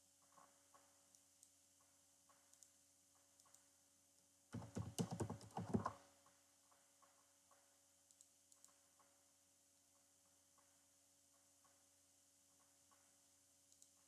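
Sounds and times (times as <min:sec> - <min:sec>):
faint clicks: 0:00.2 - 0:09.2, 0:12.5 - 0:14.0
keyboard typing: 0:04.6 - 0:06.0.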